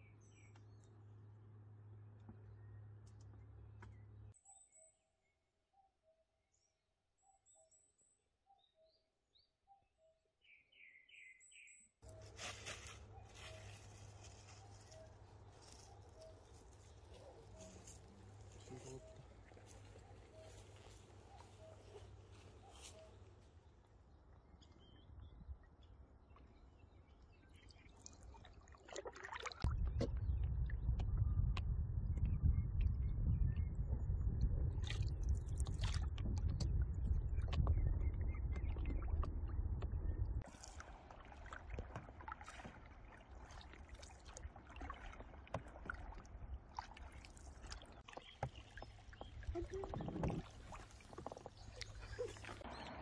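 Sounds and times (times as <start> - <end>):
birds chirping: 13.0 - 28.3, 47.9 - 53.0
water swishing: 27.6 - 29.7, 40.4 - 53.0
rushing rumble of wind and water: 29.6 - 53.0
paddle strokes: 40.4 - 52.7.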